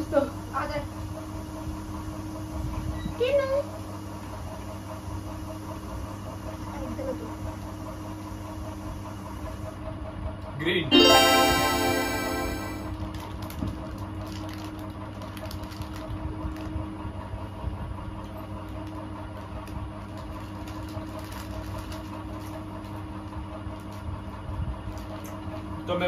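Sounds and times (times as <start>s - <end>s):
faint clicks and crackles: 18.6s - 23.0s.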